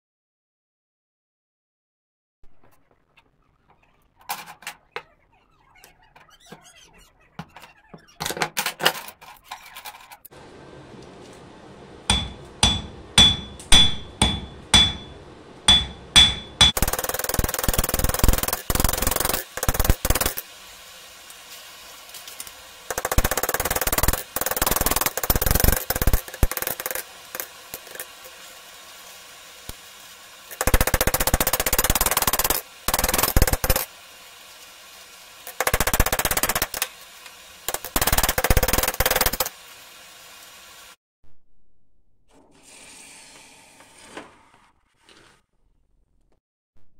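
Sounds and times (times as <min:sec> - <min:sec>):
hammer striking metal on anvil: 0:12.1 - 0:16.8.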